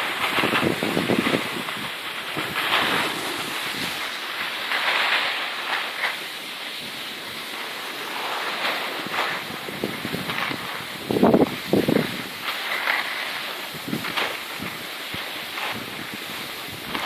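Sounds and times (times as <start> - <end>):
skis scraping on snow: 0.0 - 17.0.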